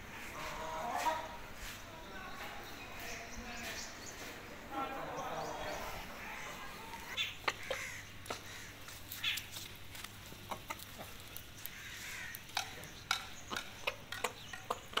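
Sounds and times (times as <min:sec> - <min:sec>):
chickens clucking: 0:00.0 - 0:15.0
beaks tapping on concrete: 0:06.9 - 0:15.0.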